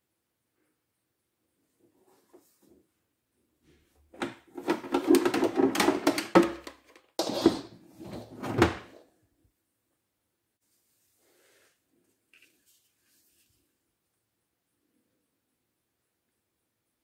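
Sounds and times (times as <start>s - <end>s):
plastic lid knocks and clicks: 4.2s - 7.1s
plastic tool case clattering: 4.2s - 9.0s.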